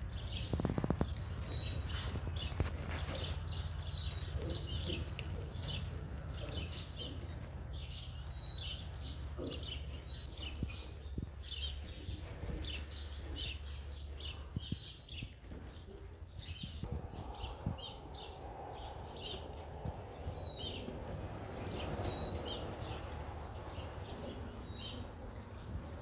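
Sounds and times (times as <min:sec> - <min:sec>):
small birds chirping: 0:00.0 - 0:26.0
low steady rumble: 0:16.1 - 0:26.0.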